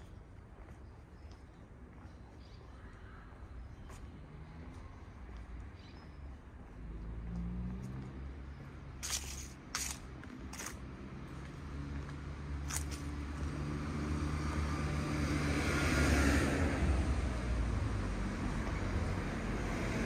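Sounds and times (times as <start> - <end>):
vehicle passing: 6.3 - 20.0.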